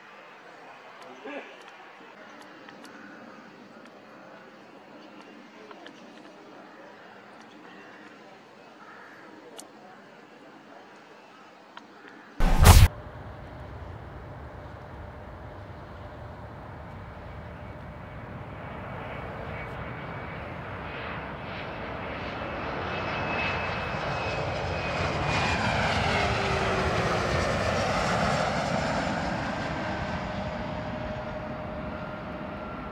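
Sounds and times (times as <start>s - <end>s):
jet passing low overhead: 12.4s - 32.9s.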